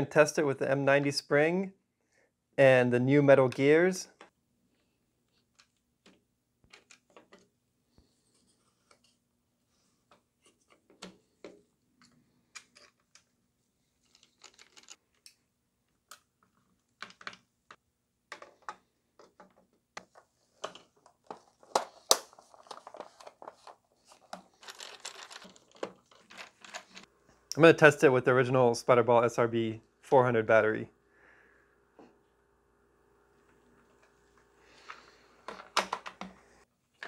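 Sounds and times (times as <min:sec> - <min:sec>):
plastic parts clicking and knocking: 0:05.3 - 0:07.5, 0:10.1 - 0:13.4, 0:14.0 - 0:27.1, 0:34.8 - 0:36.4
rustling and scraping: 0:18.4 - 0:27.1.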